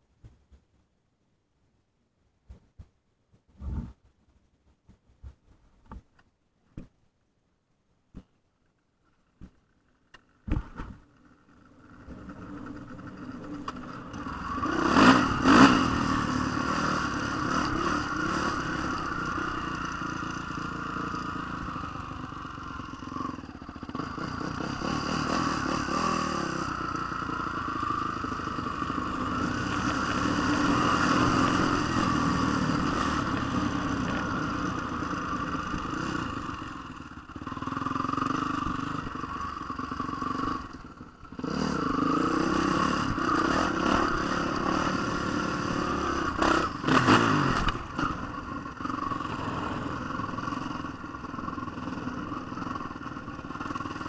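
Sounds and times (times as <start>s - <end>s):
dirt bike engine revving: 11.8s - 54.0s
tyres on gravel: 28.6s - 35.2s.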